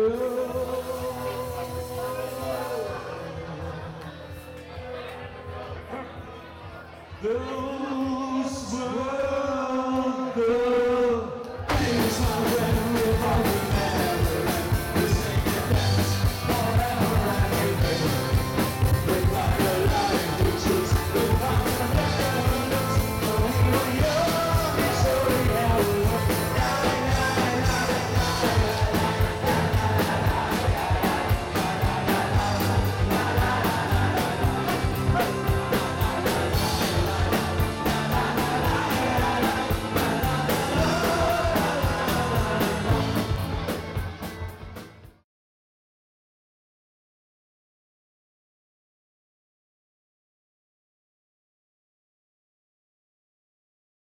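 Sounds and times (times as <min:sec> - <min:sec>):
rock band playing: 0:00.0 - 0:04.2, 0:11.6 - 0:45.2
man singing: 0:00.0 - 0:05.0, 0:07.0 - 0:44.2.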